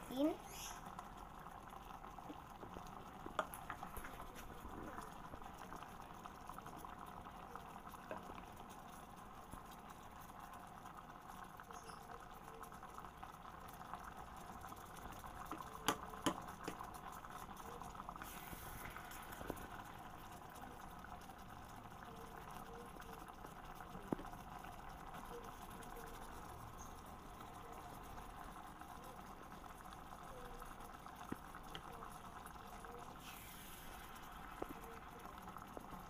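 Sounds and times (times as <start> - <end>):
sauce simmering and bubbling: 0.0 - 36.0
plastic spoon knocking: 15.8 - 16.8.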